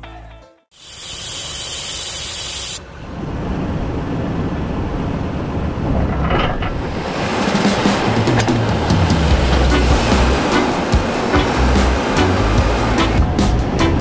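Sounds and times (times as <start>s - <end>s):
vehicle road noise hiss: 0.8s - 3.1s
wind buffeting microphone: 3.2s - 13.8s.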